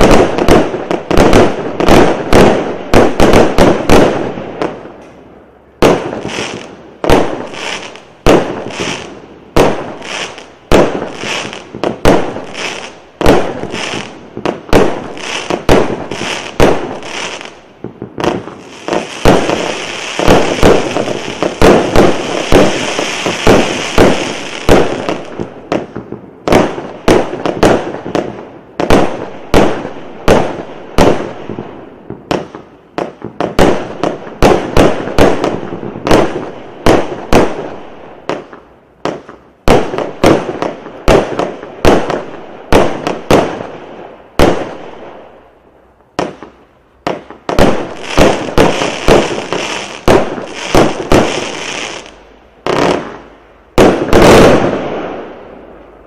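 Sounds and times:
fireworks cake bangs: 5.8 - 31.3, 46.2 - 55.2.

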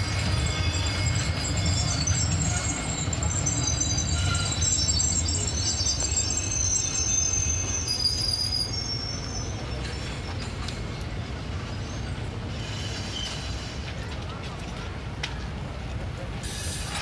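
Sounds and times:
high-pitched wheel squeal: 0.0 - 10.4
train coaches rumbling past: 0.0 - 17.0.

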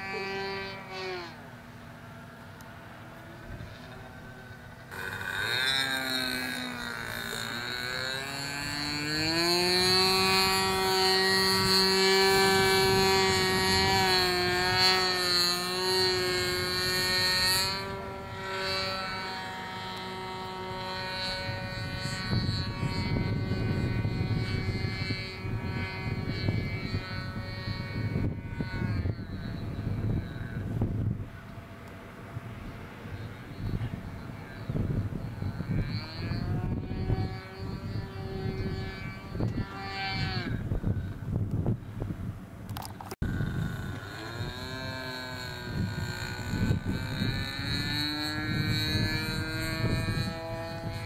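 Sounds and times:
model plane engine buzzing: 0.0 - 51.0.

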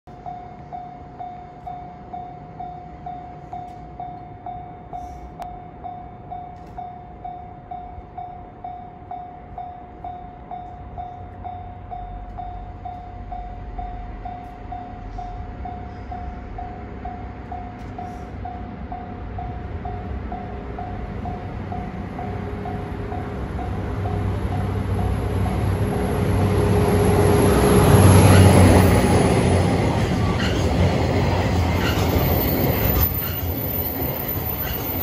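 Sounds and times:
diesel locomotive rumble: 7.9 - 35.0.

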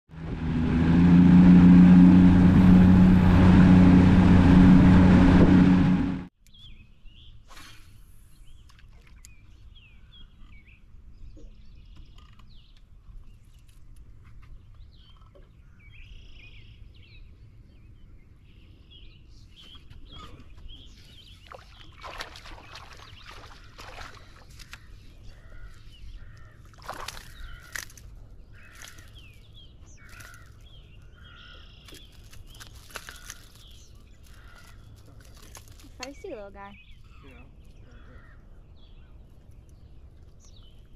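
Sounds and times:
low outdoor rumble: 0.1 - 6.3
birds chirping and calling: 19.4 - 40.9.

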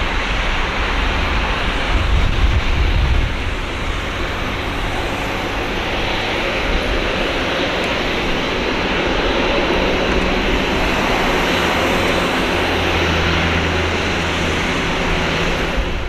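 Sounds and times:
jet engines taxiing: 0.0 - 16.0.

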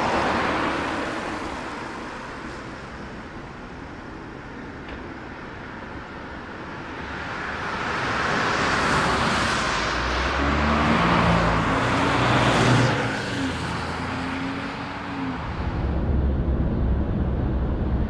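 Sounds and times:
cars passing on road: 0.0 - 18.0
car engine droning: 9.6 - 18.0.

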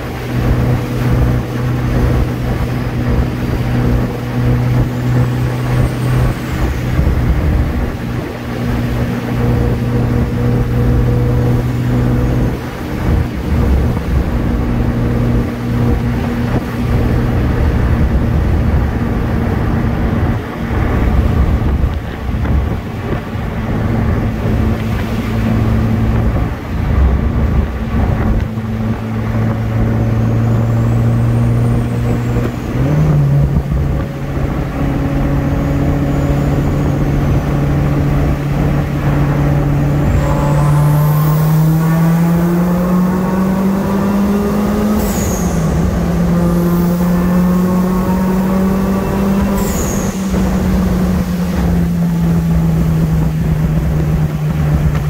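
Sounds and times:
car engine revving: 0.0 - 55.0
turbo whistle: 39.0 - 43.6, 44.3 - 46.8, 48.9 - 51.2.

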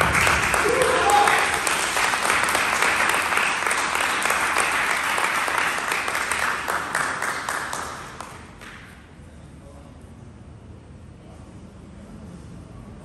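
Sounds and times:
people clapping: 0.0 - 9.0.

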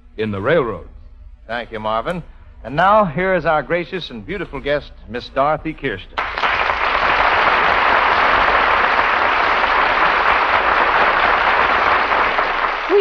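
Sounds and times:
studio audience applauding: 6.2 - 13.0.

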